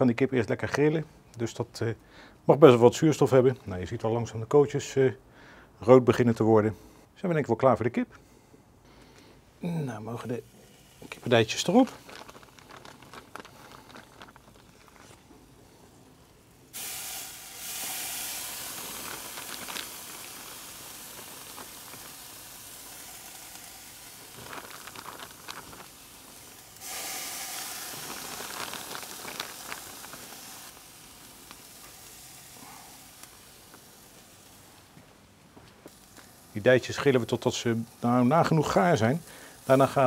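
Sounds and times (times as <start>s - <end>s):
chicken sizzling on grill: 9.7s - 14.2s, 15.0s - 35.0s, 35.8s - 40.0s
light crackles and clicks: 11.0s - 16.2s, 18.5s - 26.8s, 27.8s - 40.0s.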